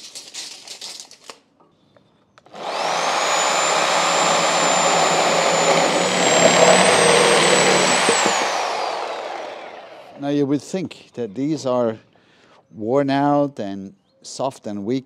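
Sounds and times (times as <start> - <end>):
reciprocating saw cutting wood: 2.5 - 10.2.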